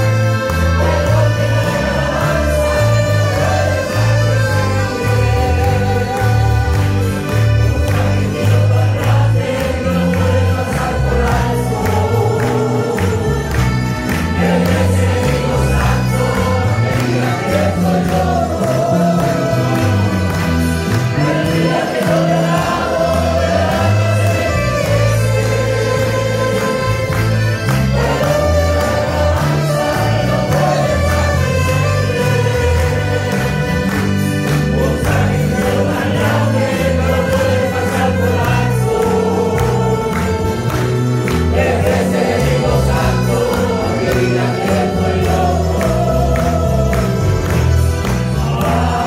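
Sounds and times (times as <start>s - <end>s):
accordion: 0.0s - 49.0s
bass line: 0.0s - 49.0s
choir singing a hymn: 0.0s - 49.0s
guitars: 0.0s - 49.0s.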